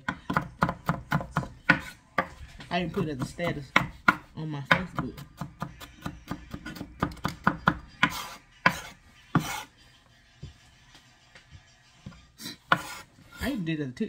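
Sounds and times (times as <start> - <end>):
knife chopping on cutting board: 0.0 - 9.7, 12.4 - 13.6.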